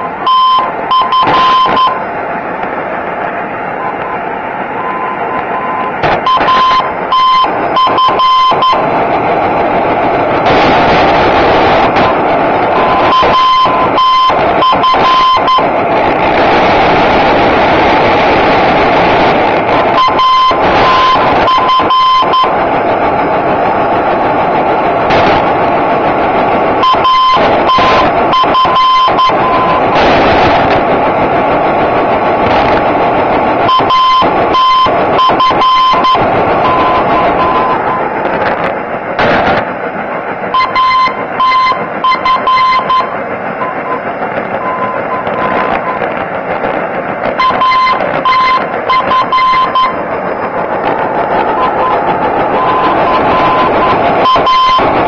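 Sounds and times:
morse code beeping tone: 0.0 - 2.2, 3.8 - 9.0, 10.5 - 15.8, 19.7 - 22.7, 26.8 - 30.5, 33.6 - 38.2, 40.5 - 46.1, 47.2 - 55.0
radio static with crackles: 0.0 - 55.0.

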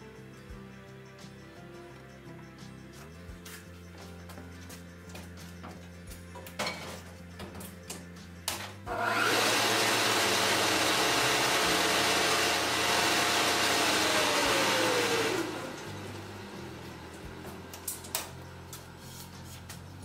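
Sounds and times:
motor whine: 8.9 - 18.7.

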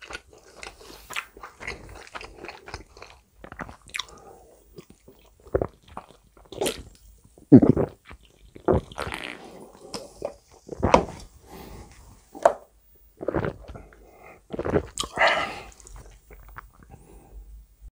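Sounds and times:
wet gulping and swallowing: 1.4 - 11.1, 13.2 - 17.0
mouth sounds: 6.5 - 11.1, 13.2 - 17.0.

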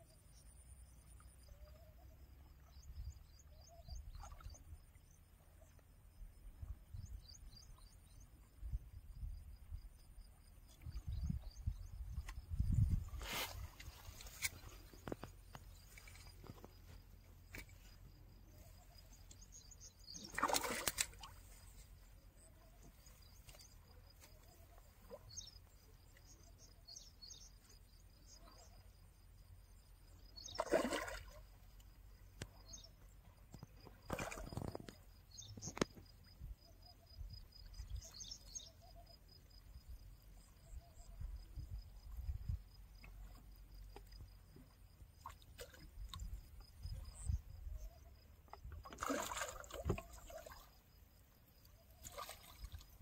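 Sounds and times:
faint bird chirps: 0.0 - 53.0
fish splashing at surface: 20.2 - 21.3, 48.8 - 50.5.

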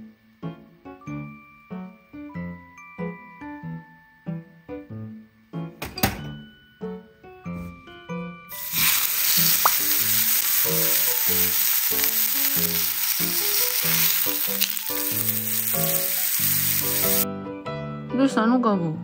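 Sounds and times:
beef sizzling in hot oil: 8.5 - 17.2.

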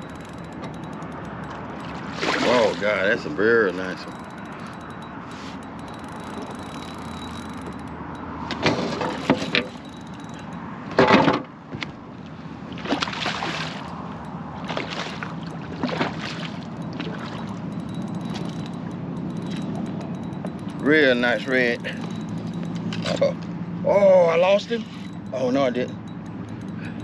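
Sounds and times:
water sloshing around kayak: 0.2 - 3.2, 12.2 - 18.7.

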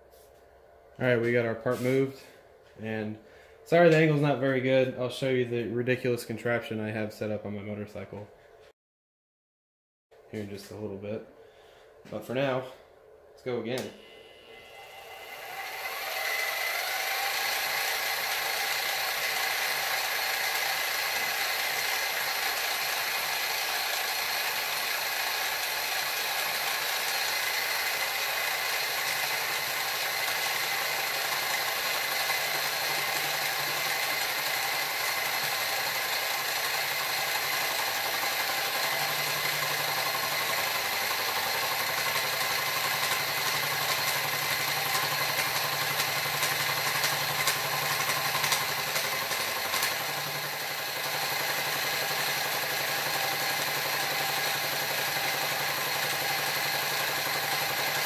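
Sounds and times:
mill motor whine: 13.7 - 58.0
flycutter cutting aluminium: 14.0 - 58.0.

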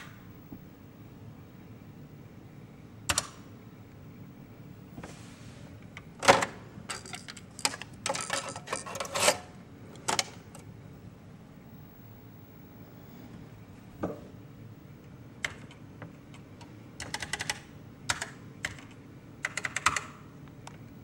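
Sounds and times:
plastic clicks and rattles: 6.2 - 9.3.

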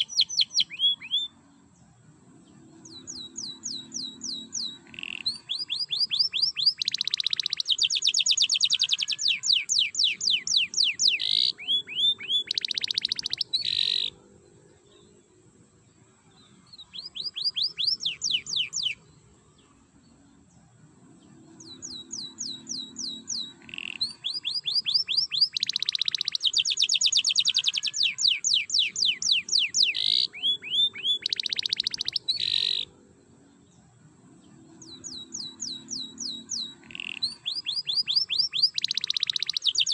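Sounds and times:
canary singing trills: 0.0 - 15.5, 16.4 - 32.9, 33.5 - 39.9.

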